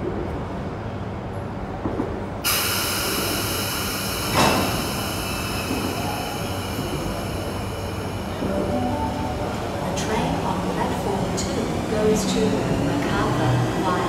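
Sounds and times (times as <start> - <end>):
electric train hiss with high tones: 2.5 - 9.7.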